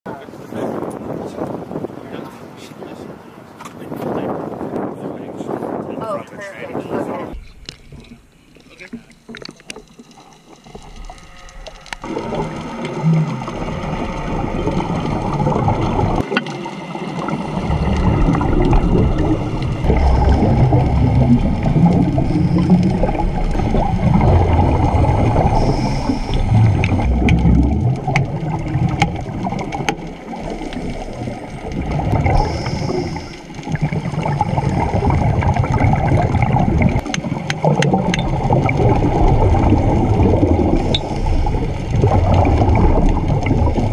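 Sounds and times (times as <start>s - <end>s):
gurgling exhaled bubbles: 7.2s - 43.9s
diver breathing through regulator: 17.7s - 27.7s, 32.0s - 35.0s.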